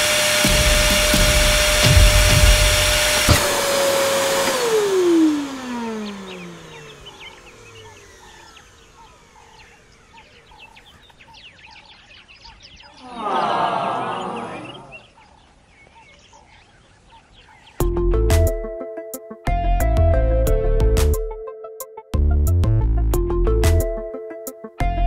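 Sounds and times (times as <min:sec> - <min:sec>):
vacuum cleaner motor whining: 0:00.0 - 0:11.7.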